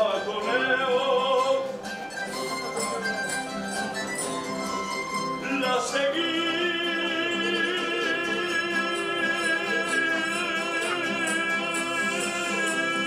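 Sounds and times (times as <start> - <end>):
man singing with vibrato: 0.0 - 1.9, 5.4 - 13.0
guitars and bandurrias: 0.0 - 13.0.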